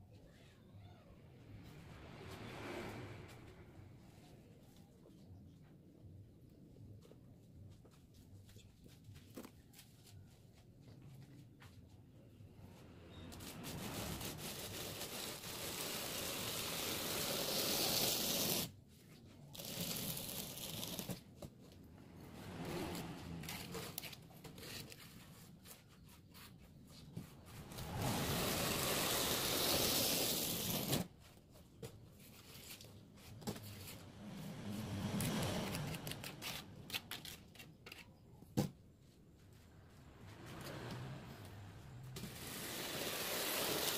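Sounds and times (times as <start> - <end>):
tool scraping wet cement: 27.1 - 31.1.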